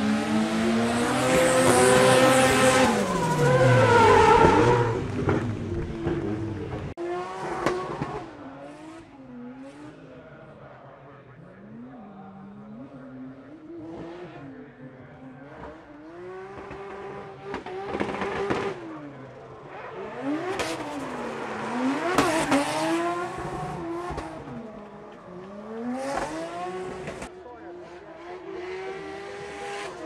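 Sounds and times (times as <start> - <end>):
rotary engine revving: 0.0 - 9.9, 15.4 - 30.0
tyre squeal: 2.5 - 5.0.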